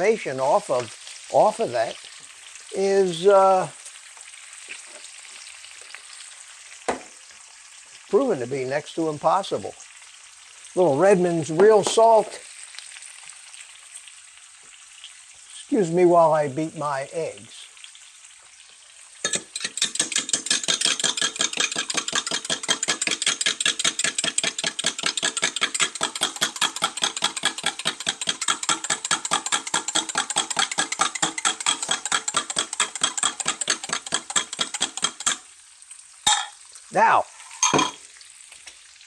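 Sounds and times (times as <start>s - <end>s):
fork whisking eggs in glass: 19.3s - 35.4s.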